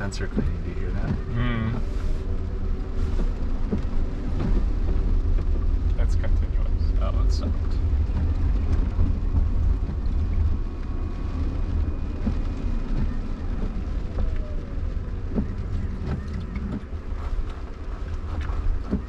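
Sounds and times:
wiper strokes: 0.0s - 6.8s
rain tapping on windscreen: 0.0s - 19.0s
tyres rumbling on wet road: 0.0s - 19.0s.

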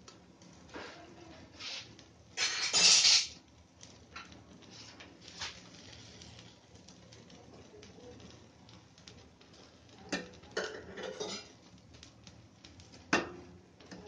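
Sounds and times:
metal spatula scraping frying pan: 1.6s - 3.4s, 10.6s - 11.6s.

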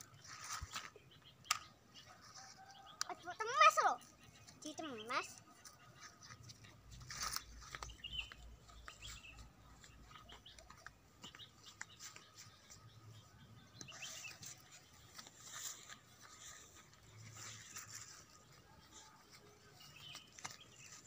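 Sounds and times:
plants rustling and snapping: 0.0s - 1.7s, 6.3s - 9.2s, 13.7s - 21.0s
bird chirping: 0.0s - 21.0s.

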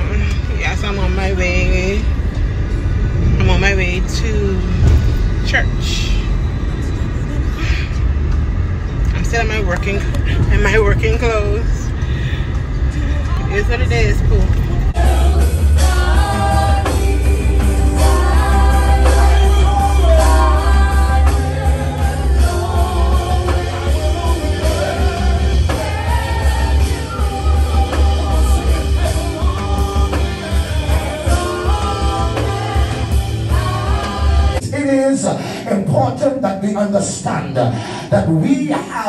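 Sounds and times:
band playing with strong bass: 9.1s - 34.7s
people singing into microphones: 12.2s - 34.7s.

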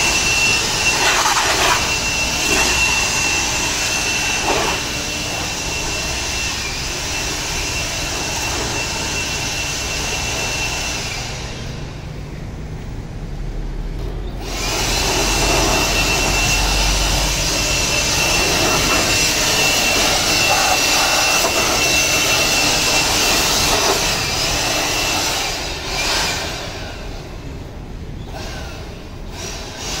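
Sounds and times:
battery blower running: 0.0s - 12.3s, 14.3s - 27.6s, 28.2s - 30.0s.

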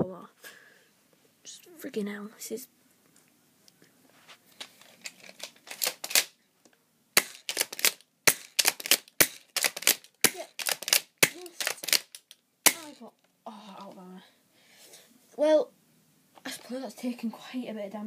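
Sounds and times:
gun clicks and rattles: 4.6s - 6.4s, 7.2s - 13.0s
bb gun heavy snaps: 7.2s - 13.0s.

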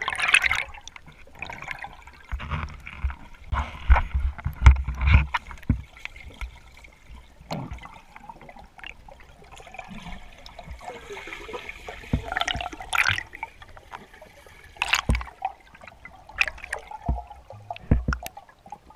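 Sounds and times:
underwater water rushing and bubbling: 0.0s - 18.9s
knocks and clicks: 16.5s - 18.4s.

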